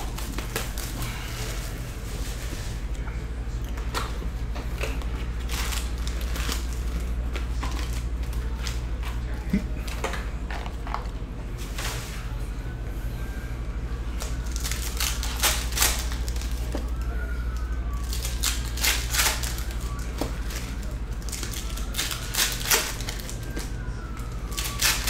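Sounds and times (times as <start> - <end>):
foil packs rustling: 0.0 - 2.9, 4.7 - 9.2, 14.2 - 25.0
steady low hum: 0.0 - 25.0.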